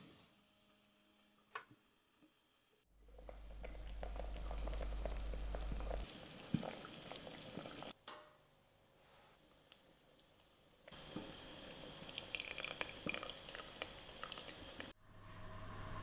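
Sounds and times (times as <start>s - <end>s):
low hum: 3.0s - 6.1s, 15.0s - 16.0s
broth bubbling in pot: 3.0s - 8.0s, 9.4s - 15.0s.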